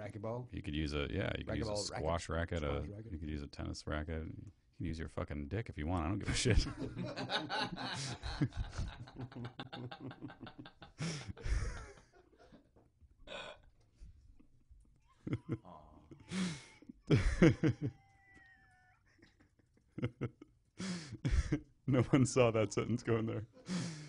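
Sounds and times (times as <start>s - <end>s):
men laughing hard: 6.3s - 12.5s, 15.2s - 16.4s, 17.1s - 18.1s, 19.1s - 20.5s.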